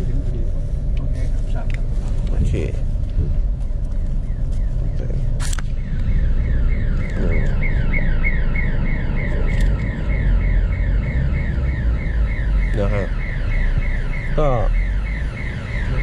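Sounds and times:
vehicle engine rumble: 0:00.0 - 0:16.0
electronic alarm warbling: 0:04.3 - 0:16.0.

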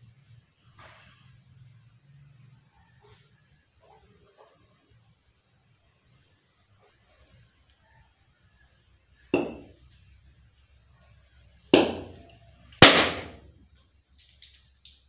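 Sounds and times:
coconut cracking on hard surface: 0:09.4 - 0:09.7, 0:11.8 - 0:12.2, 0:12.8 - 0:13.5.

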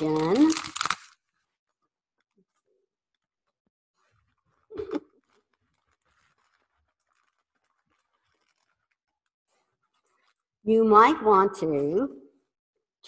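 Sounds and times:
boxed goods rustling and clicking: 0:00.0 - 0:01.6, 0:04.0 - 0:10.4.

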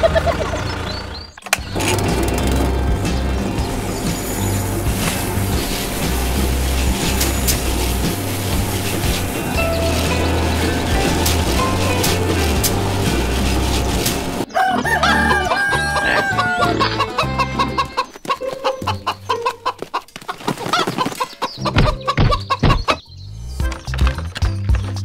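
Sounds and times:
clattering machine noise: 0:00.0 - 0:14.5
hens clucking: 0:00.0 - 0:23.0
background music: 0:01.6 - 0:18.1
rooster crowing: 0:14.5 - 0:18.0.

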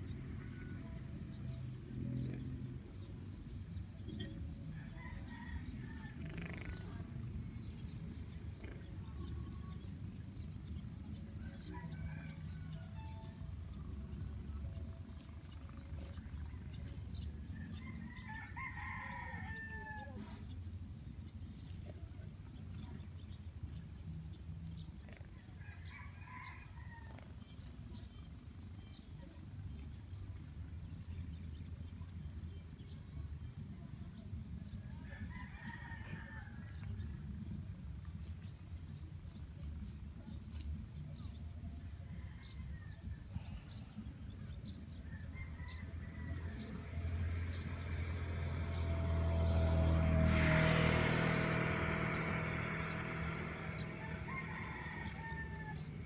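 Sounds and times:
roosters crowing: 0:04.7 - 0:07.0, 0:16.8 - 0:20.4, 0:25.6 - 0:27.4, 0:34.9 - 0:37.4, 0:44.8 - 0:56.0.

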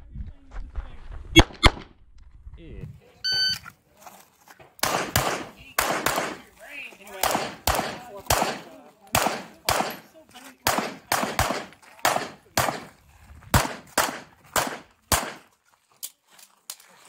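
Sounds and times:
echoing pistol shots: 0:04.8 - 0:06.5, 0:07.2 - 0:15.4.

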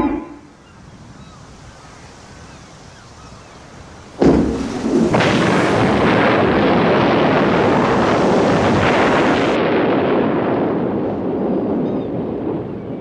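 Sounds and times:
loud blast: 0:04.2 - 0:10.7
roaring rumble: 0:04.2 - 0:11.0.

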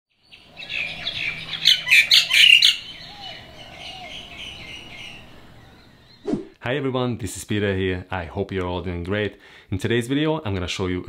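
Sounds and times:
birds chirping and chattering: 0:00.2 - 0:06.5.

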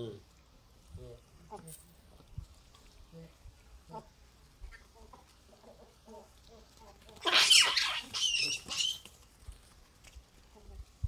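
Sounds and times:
baboons calling: 0:04.7 - 0:09.1
baboons screaming: 0:07.2 - 0:09.1.

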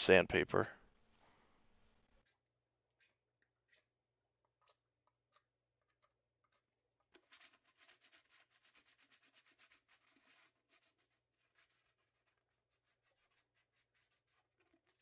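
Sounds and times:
knife scraping plastic pipe: 0:02.0 - 0:15.0
sandpaper rubbing on plastic: 0:06.5 - 0:15.0.

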